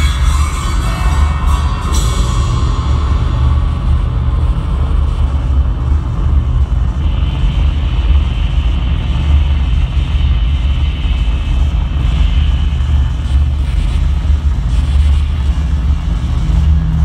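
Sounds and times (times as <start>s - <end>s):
thin high tone: 0.0s - 5.4s
electronic noise music drone: 0.0s - 17.0s.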